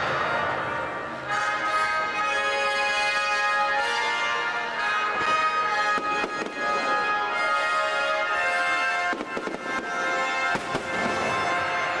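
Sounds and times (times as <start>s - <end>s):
fireworks bursting with bangs: 4.8s - 12.0s.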